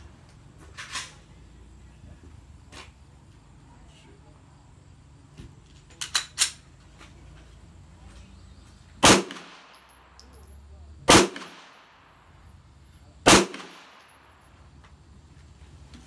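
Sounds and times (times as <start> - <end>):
rifle shots with echo: 9.0 - 10.1, 11.1 - 12.3, 13.2 - 14.4.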